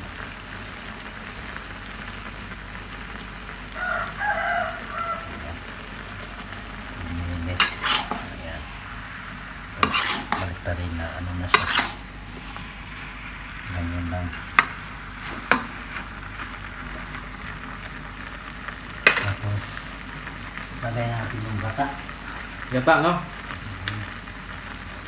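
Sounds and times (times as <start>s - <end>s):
food sizzling in a wok: 0.0s - 25.0s
spatula scraping a wok: 7.3s - 13.6s.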